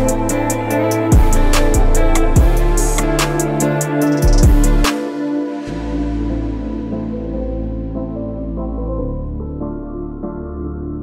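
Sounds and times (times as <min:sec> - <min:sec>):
instrumental music: 0:00.0 - 0:11.0
drum beat: 0:02.4 - 0:05.0.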